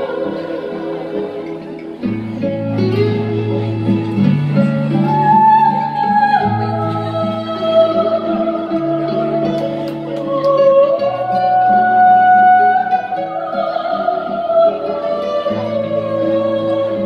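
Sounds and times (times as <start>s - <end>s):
woman singing a ballad: 4.9s - 17.0s.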